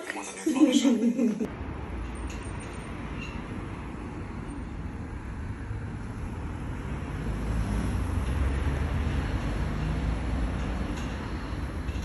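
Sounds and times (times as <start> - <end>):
road traffic rumble: 1.1 - 12.0
vehicle passing by: 2.8 - 12.0.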